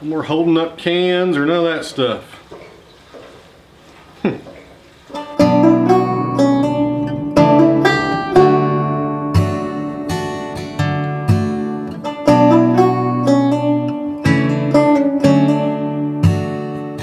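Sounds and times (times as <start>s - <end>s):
acoustic guitar strumming chords: 5.1s - 17.0s.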